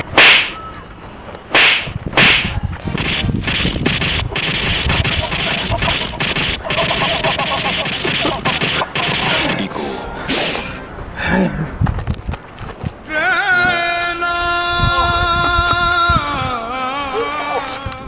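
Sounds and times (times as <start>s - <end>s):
whack and punch sound effects: 0.2s - 0.6s, 1.5s - 9.6s.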